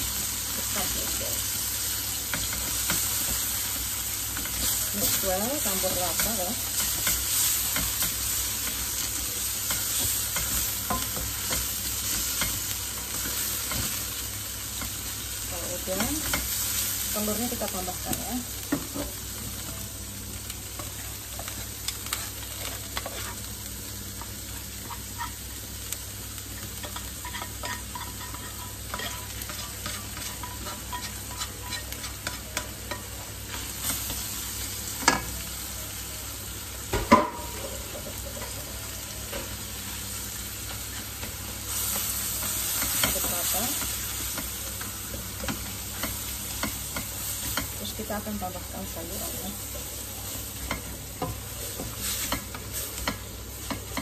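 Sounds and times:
meat sizzling in a wok: 0.0s - 54.0s
spatula scraping a pan: 22.0s - 23.5s, 26.8s - 33.0s.

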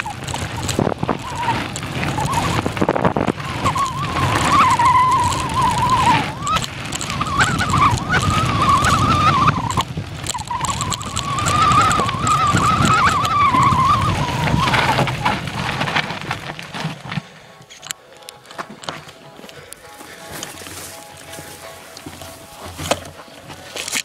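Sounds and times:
wind on microphone: 0.0s - 16.4s
bike trail rumble: 0.0s - 24.0s.

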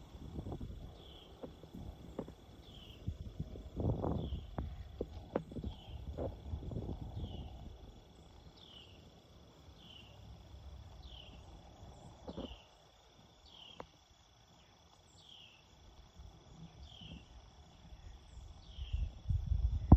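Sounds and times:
low outdoor rumble: 0.0s - 12.8s
high insect trill: 0.0s - 19.9s.

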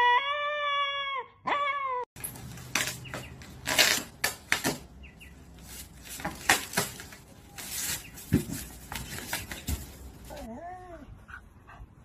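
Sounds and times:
dog tearing at a bag: 2.2s - 4.8s.

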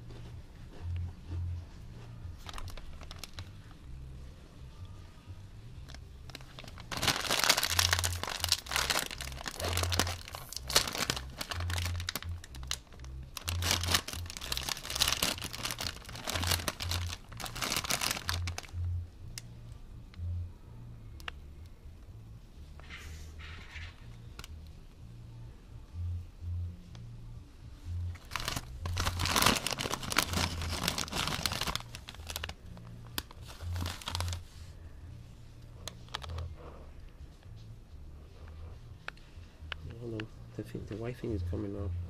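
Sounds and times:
chip bag crinkling: 2.4s - 3.7s, 6.3s - 18.8s, 28.2s - 32.6s, 33.2s - 34.4s.

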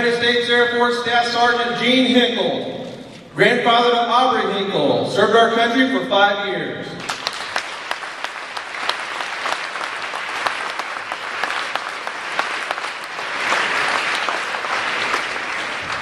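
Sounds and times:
audience clapping: 7.0s - 16.0s.

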